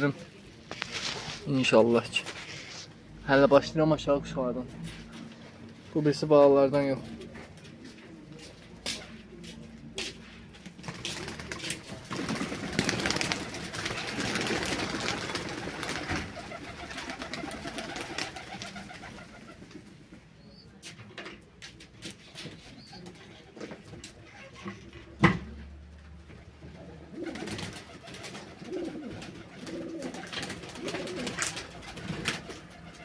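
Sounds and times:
pigeons cooing: 12.3s - 19.9s, 26.7s - 33.0s.

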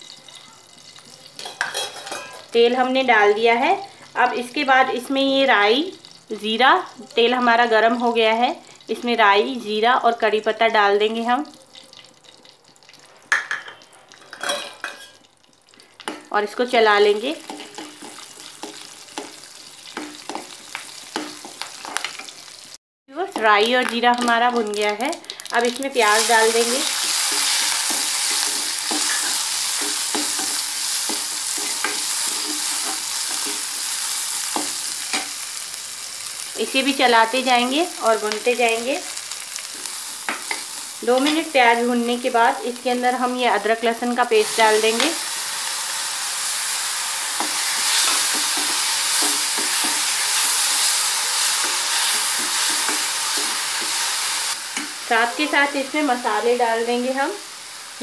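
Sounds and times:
onions sizzling in oil: 0.0s - 58.0s
metal spoon scraping a pan: 1.4s - 2.5s, 26.2s - 35.4s, 47.4s - 55.7s.

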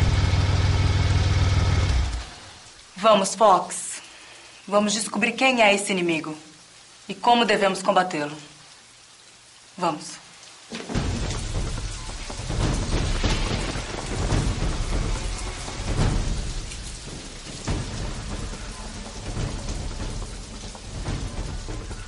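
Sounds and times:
heavy rain: 0.0s - 22.0s
thunder rolling: 10.8s - 22.0s.

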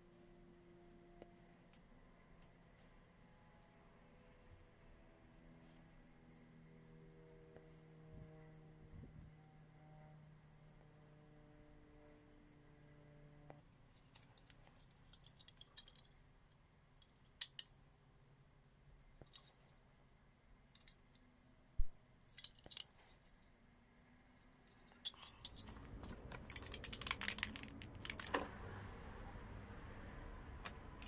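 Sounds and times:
small metal parts clinking: 14.0s - 16.2s, 20.7s - 21.2s, 22.3s - 23.5s, 24.6s - 28.4s.

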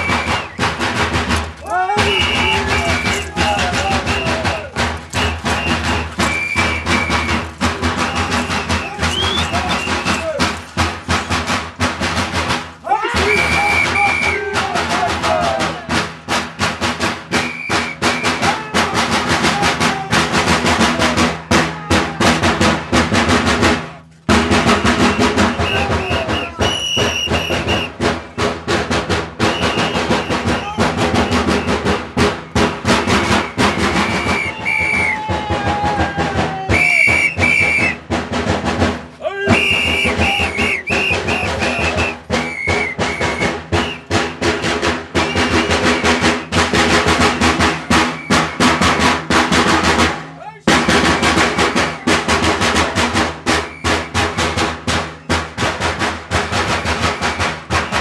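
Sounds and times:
fast drum rolls: 0.0s - 58.0s.

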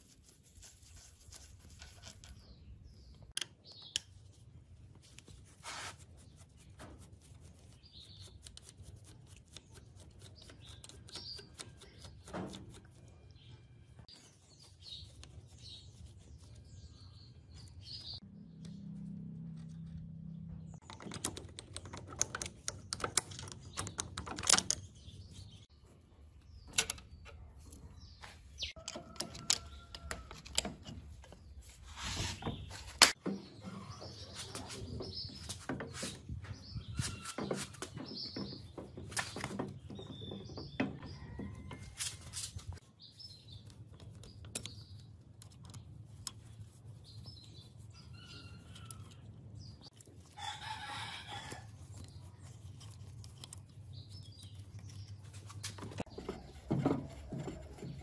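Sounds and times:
birds chirping: 6.1s - 58.0s
metallic clicks and knocks: 20.7s - 25.2s, 26.4s - 27.9s, 28.7s - 31.4s.

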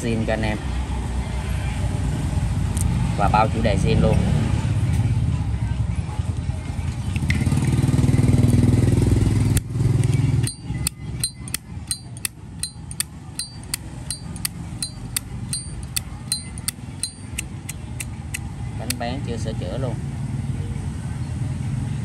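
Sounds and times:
sharp ringing ticks: 10.4s - 18.1s.

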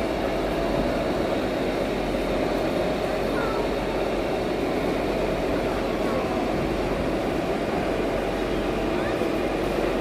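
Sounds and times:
constant drone: 0.0s - 10.0s
crowd chatter: 2.4s - 10.0s.

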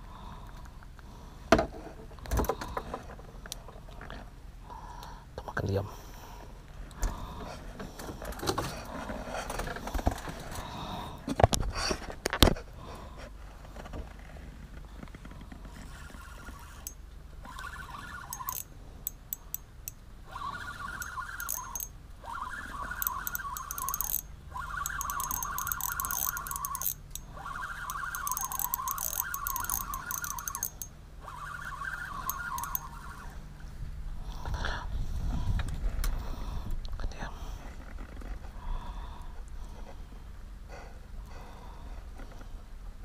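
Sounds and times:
spinning reel gears whirring: 15.8s - 33.4s.

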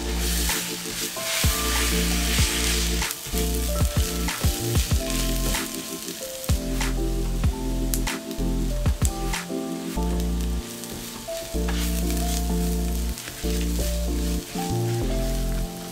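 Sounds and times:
food sizzling in hot oil: 0.0s - 8.8s.

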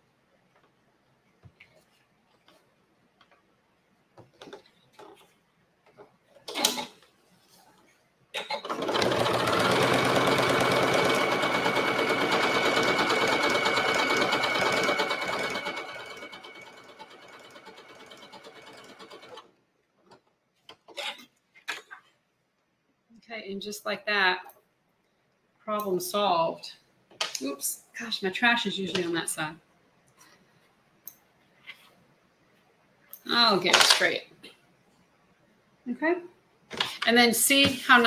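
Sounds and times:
sewing machine stitching: 8.4s - 19.5s.

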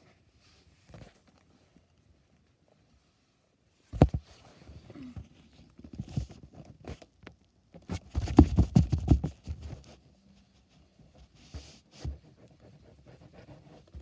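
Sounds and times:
plush toy knocking on wooden floor: 8.2s - 9.5s.

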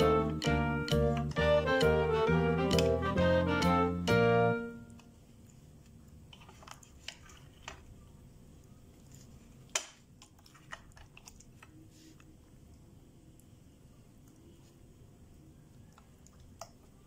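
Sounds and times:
slime squelching: 8.9s - 12.8s.

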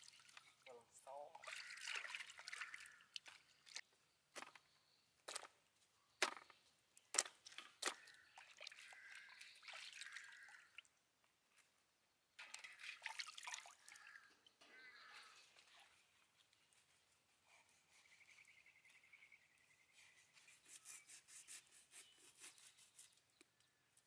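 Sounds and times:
water splashing into metal basin: 1.3s - 3.8s, 7.2s - 10.9s, 12.4s - 14.6s.

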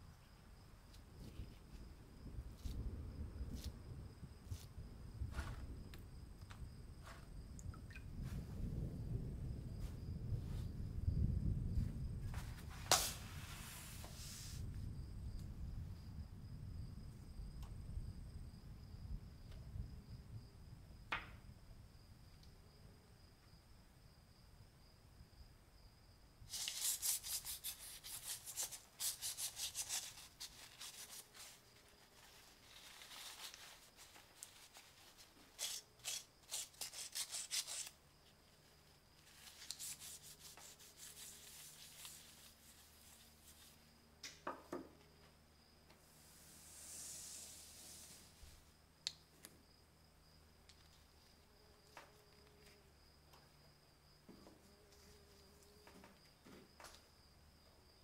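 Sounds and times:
gloved hands scrubbing metal tube: 32.2s - 37.9s, 39.4s - 43.7s.

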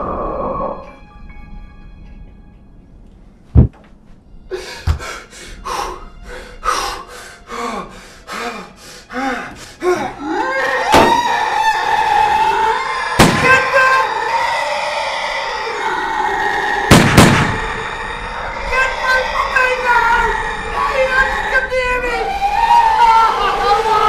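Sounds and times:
heavy thump: 3.6s - 3.8s
person gasping breaths: 4.5s - 10.2s.

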